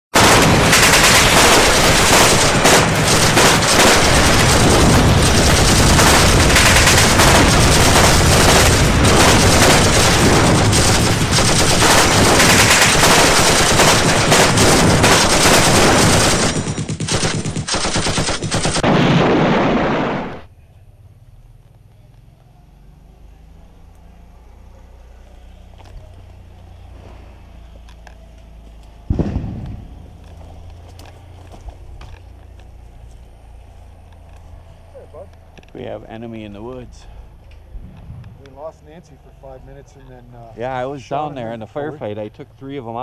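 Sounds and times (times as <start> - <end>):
automatic gunfire: 0.2 - 20.5.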